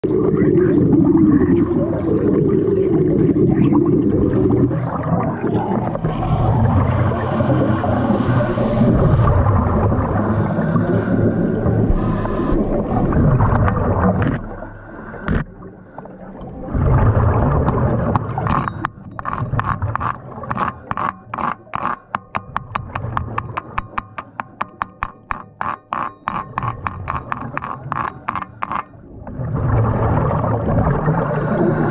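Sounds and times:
bubbling water: 0.0 - 31.9
sharp regular clicks: 18.0 - 28.9.

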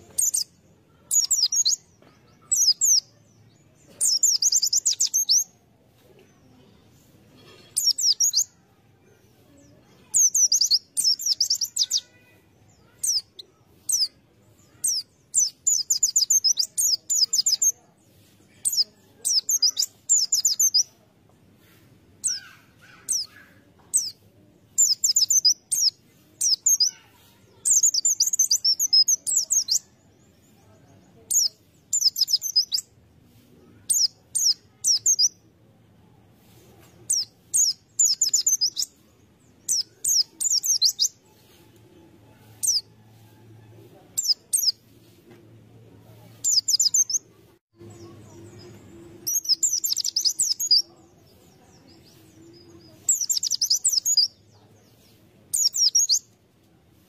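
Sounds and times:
bird twittering song: 0.0 - 5.6, 7.7 - 8.6, 9.5 - 21.0, 22.2 - 32.9, 33.8 - 35.4, 36.8 - 41.2, 44.2 - 44.9, 46.4 - 56.4
sharp bird chirps: 4.0 - 5.5, 10.0 - 12.1, 31.3 - 32.9, 37.1 - 39.0, 39.7 - 41.2, 46.4 - 47.2, 49.2 - 50.8, 53.0 - 54.3.

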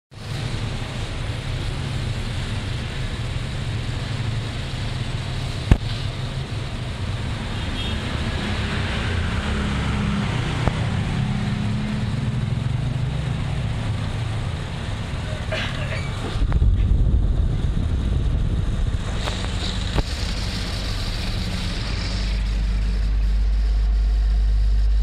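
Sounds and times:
air rushing from fan blades: 0.2 - 25.0
ceiling fan motor hum: 10.1 - 25.0.

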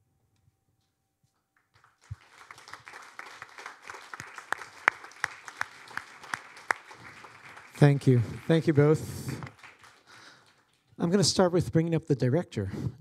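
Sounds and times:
audience applause: 1.8 - 11.5.

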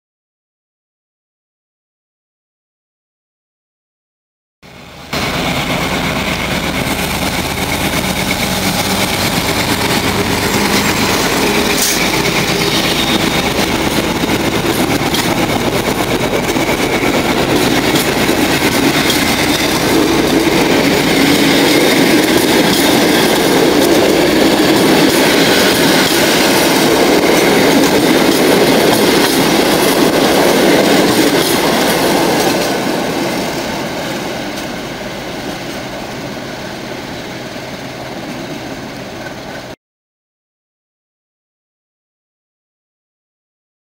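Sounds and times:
train wheels on rails: 4.7 - 39.8.

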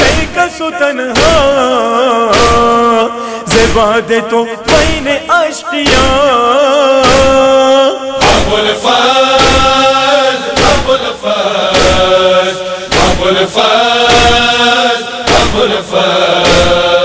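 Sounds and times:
men chanting in chorus: 0.0 - 17.0
chest-beating strikes: 2.3 - 2.8, 4.6 - 5.1, 7.0 - 7.5, 8.2 - 17.0.

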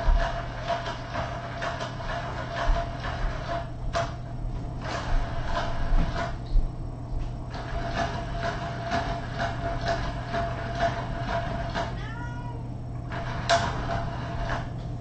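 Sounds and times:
steady hum: 0.0 - 15.0
kitten meowing: 12.0 - 12.6.

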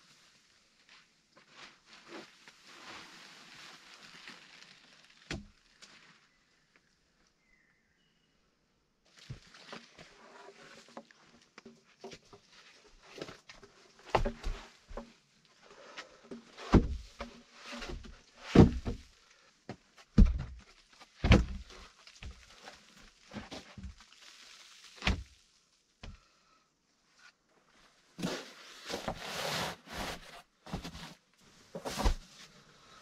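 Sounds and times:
rustling and shuffling: 0.0 - 6.3, 9.1 - 24.8, 27.2 - 33.0
wooden logs thudding: 14.1 - 15.1, 16.3 - 19.0, 20.2 - 22.4.

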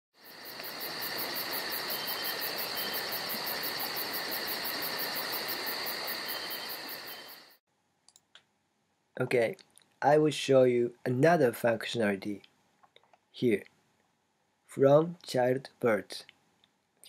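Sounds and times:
insect high trill: 0.2 - 7.6
insect pulsing chirp: 0.2 - 7.6.

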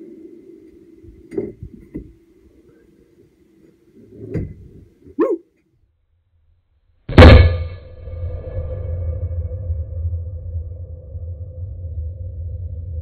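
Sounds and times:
short barking calls: 5.1 - 5.6.

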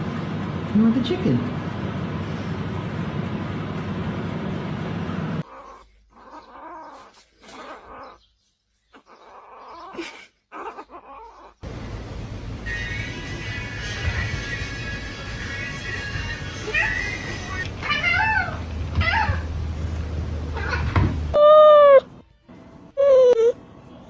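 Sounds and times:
kitten crying and growling: 5.4 - 8.2, 8.9 - 11.6, 16.2 - 19.6, 20.5 - 22.1
steady noise: 11.6 - 17.9.

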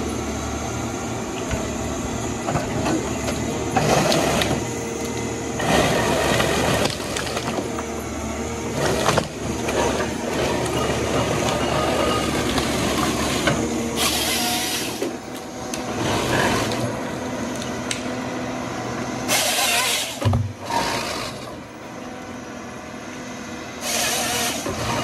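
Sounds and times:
diesel engine running under load: 0.0 - 25.0
hydraulics working: 0.0 - 25.0
saw cutting wood: 8.7 - 15.2, 19.3 - 21.6, 23.8 - 25.0.

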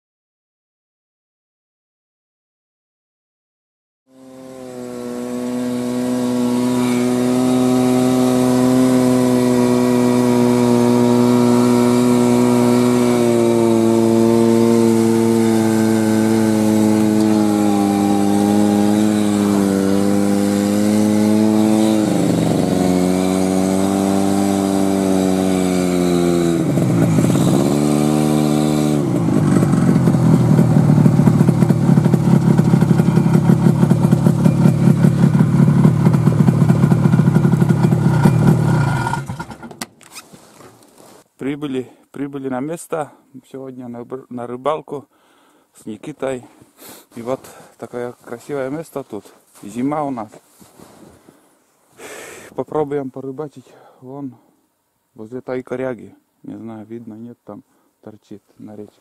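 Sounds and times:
snowmobile engine running: 4.1 - 39.7.

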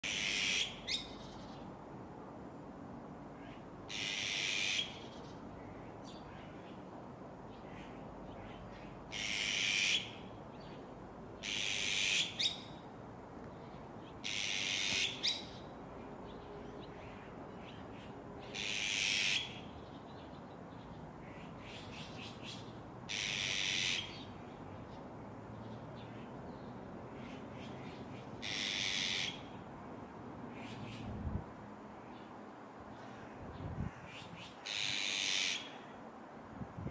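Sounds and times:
magpies calling harshly: 0.0 - 1.4, 3.4 - 5.7, 7.6 - 10.3, 11.4 - 12.8, 14.2 - 15.6, 17.0 - 19.7, 21.2 - 24.3, 27.2 - 29.6, 33.9 - 36.0.

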